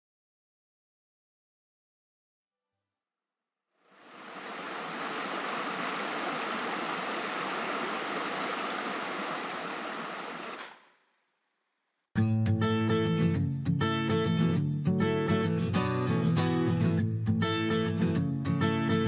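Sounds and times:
stream flowing over rocks: 3.9 - 10.7.

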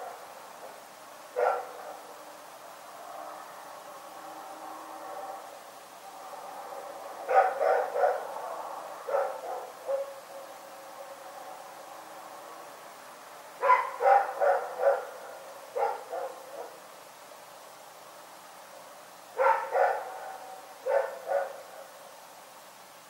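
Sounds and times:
dog barking: 1.4 - 2.2, 7.3 - 8.3, 9.1 - 10.3, 13.6 - 16.8, 19.4 - 21.6.

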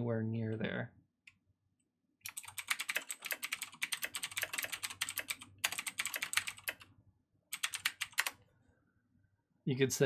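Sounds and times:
typing on computer keyboard: 2.3 - 6.9, 7.5 - 8.4.

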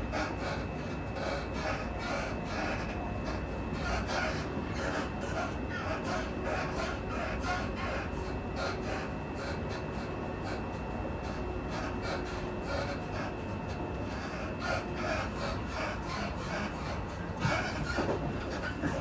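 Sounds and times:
train rumble: 0.0 - 19.0
train clatter: 8.6 - 19.0.

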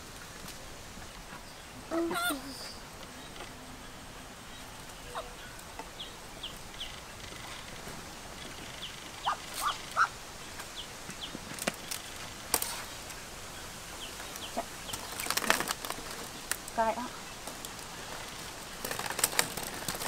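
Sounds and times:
high animal chirps: 8.8 - 10.1.

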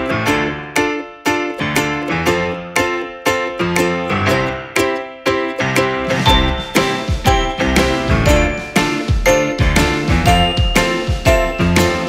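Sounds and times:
bright tinkling tune with beat: 6.1 - 12.0.

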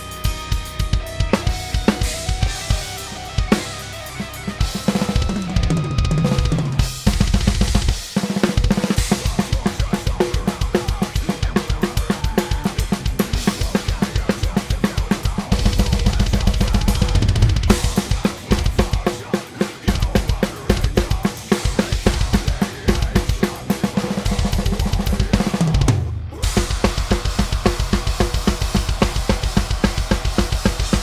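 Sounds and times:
fast bass drum strokes: 0.0 - 31.0
cymbals crashing: 26.4 - 31.0.

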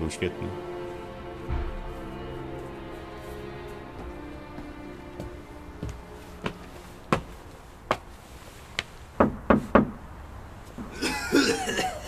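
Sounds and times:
footsteps on outdoor steps: 0.8 - 12.0
knocking on a door: 9.2 - 10.0.

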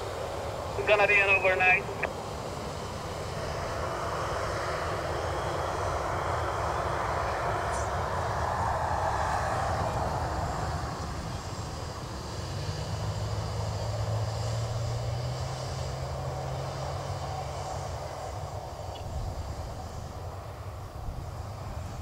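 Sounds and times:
faint high whine: 0.0 - 2.4
jet engine low hum: 0.0 - 22.0
jet engine roar: 0.0 - 22.0.

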